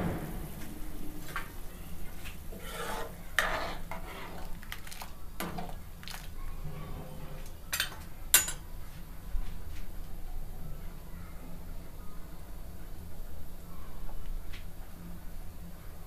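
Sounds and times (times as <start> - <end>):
ladle scraping and sloshing curry: 2.0 - 7.6.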